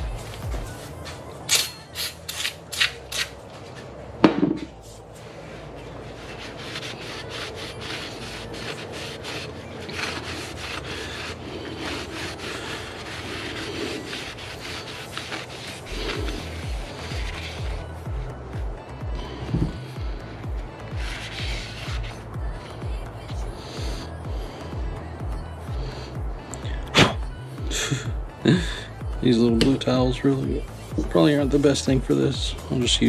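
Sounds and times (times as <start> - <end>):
paper towel scrubbing metal: 5.4 - 17.9, 20.8 - 22.2.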